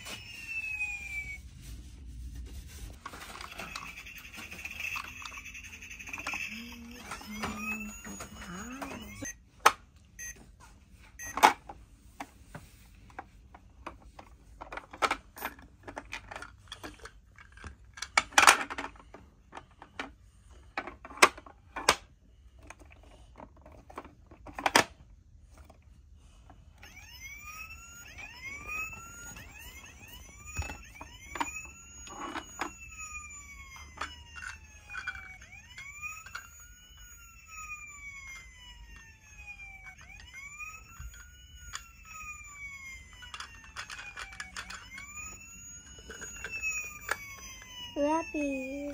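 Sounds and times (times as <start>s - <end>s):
electronic toy siren wailing: 0.0s - 1.7s, 3.0s - 11.6s, 26.4s - 48.9s
plastic toy clicks and knocks: 13.8s - 19.0s, 43.0s - 47.6s.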